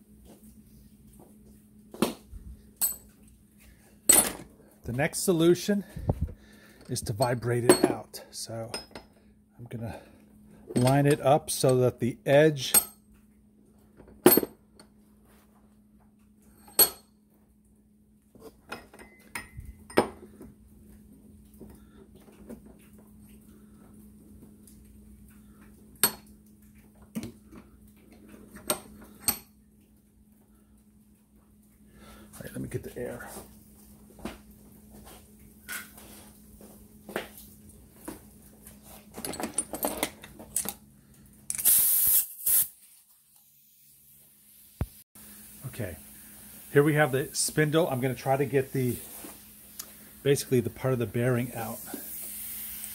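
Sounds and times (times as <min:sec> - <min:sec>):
faint steady hum: 0:00.0 - 0:41.7, 0:43.4 - 0:52.9
metal clanks and clinks: 0:10.7 - 0:11.9, 0:39.2 - 0:40.8
pneumatic air hammer hissing: 0:41.5 - 0:44.0, 0:51.6 - 0:52.9.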